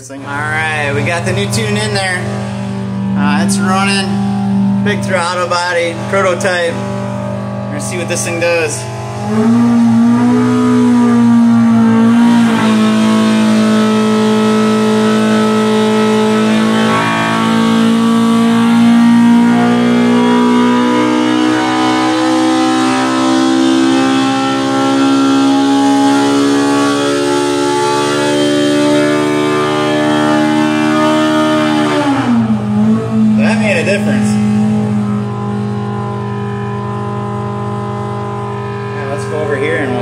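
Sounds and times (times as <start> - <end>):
engine roaring at full throttle: 0.0 - 40.0.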